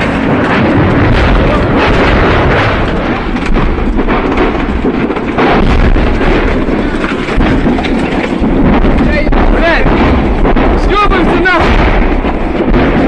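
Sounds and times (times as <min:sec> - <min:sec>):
explosions rumbling: 0:00.0 - 0:13.0
sharp cracks and crackling: 0:00.0 - 0:13.0.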